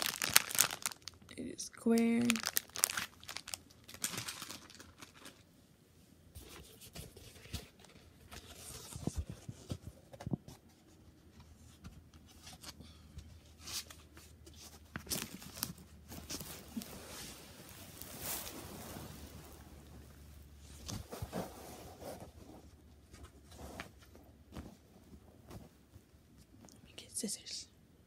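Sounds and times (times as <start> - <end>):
canvas rustling: 0.0 - 1.2, 2.2 - 5.2, 15.1 - 22.7.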